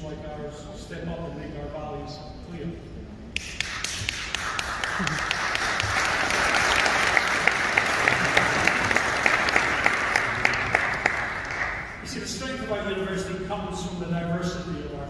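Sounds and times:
sharp claps close by: 3.3 - 12.0
audience applauding: 3.4 - 12.0.

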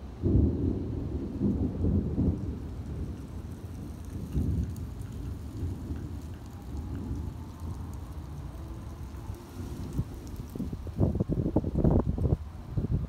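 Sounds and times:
rolling thunder: 0.0 - 12.5
steady rain: 0.0 - 13.0.

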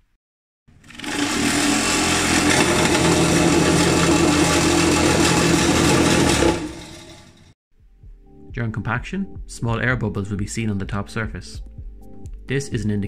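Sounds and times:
vibrating table humming and rattling: 0.7 - 7.6.

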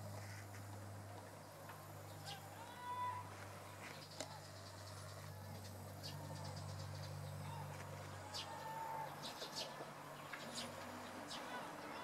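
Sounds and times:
low steady hum: 0.0 - 12.0
sparrows chirping: 3.7 - 12.0.

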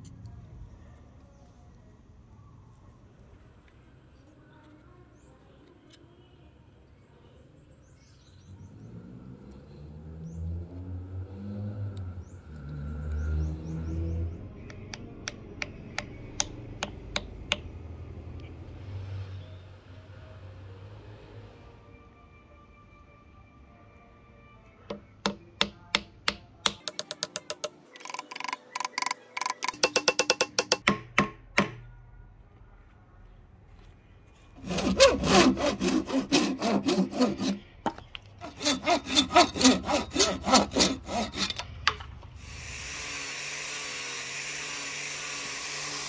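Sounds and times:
hammer tapping wooden wedge: 14.7 - 17.7, 24.9 - 31.8.

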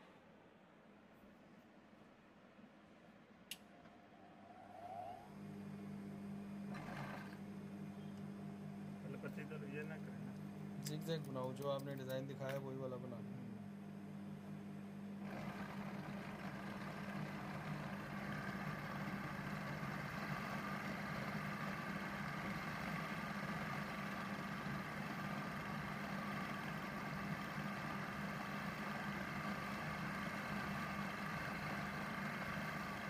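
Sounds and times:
sewing machine humming: 6.6 - 13.6, 15.2 - 33.0.

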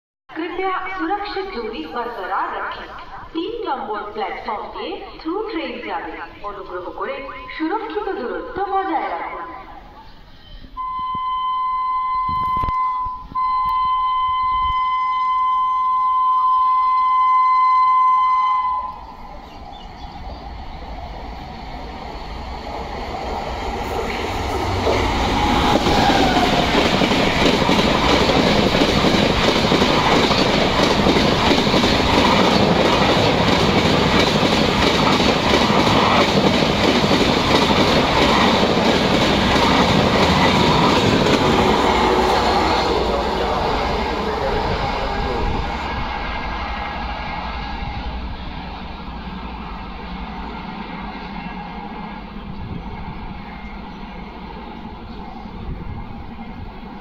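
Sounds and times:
locomotive horn blast: 10.8 - 19.3, 41.2 - 46.1
train passing at speed: 17.9 - 57.0.

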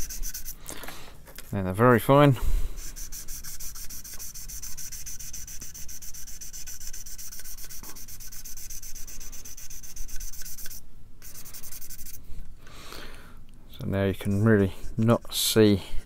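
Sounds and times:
sanding stick rubbing plastic: 0.0 - 0.6, 2.8 - 12.2.

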